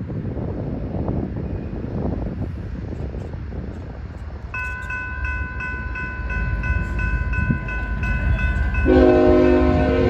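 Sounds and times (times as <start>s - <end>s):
wind rumble on microphone: 0.0s - 10.0s
railroad crossing bell ringing: 4.5s - 10.0s.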